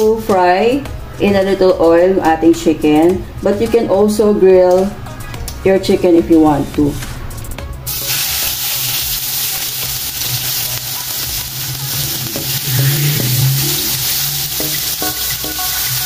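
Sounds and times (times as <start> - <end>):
chicken sizzling in oil: 7.9 - 16.0.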